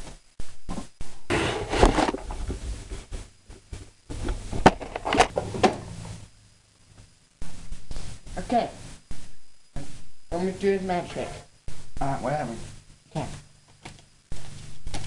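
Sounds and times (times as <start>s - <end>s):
rustling and scraping handling noise: 0.0s - 6.2s.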